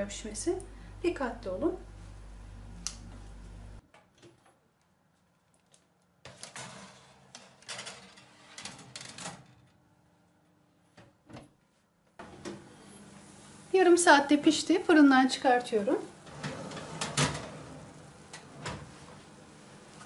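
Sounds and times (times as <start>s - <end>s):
baking tray scraping on oven rack: 6.4s - 9.6s, 16.2s - 18.0s.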